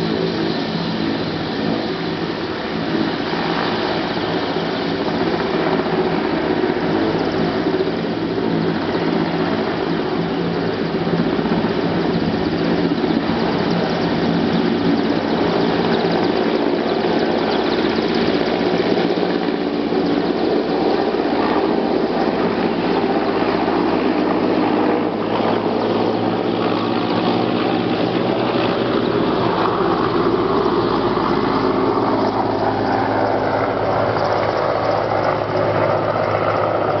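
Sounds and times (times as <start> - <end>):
helicopter engine and rotor noise: 0.0 - 37.0.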